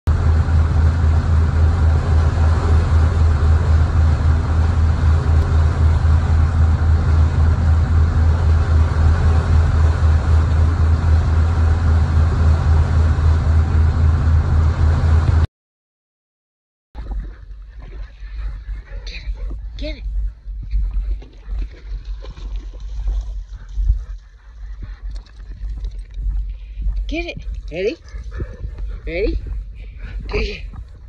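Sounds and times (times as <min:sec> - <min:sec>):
boat engine drone: 0:00.0 - 0:15.5, 0:17.0 - 0:31.0
wake water rushing: 0:00.1 - 0:15.4
wind rushing: 0:26.2 - 0:31.0.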